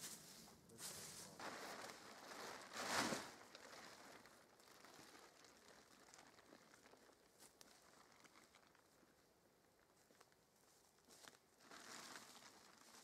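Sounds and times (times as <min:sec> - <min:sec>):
plastic tarp rustling: 0:00.0 - 0:09.1, 0:11.0 - 0:13.0
tarp swish: 0:00.8 - 0:04.0.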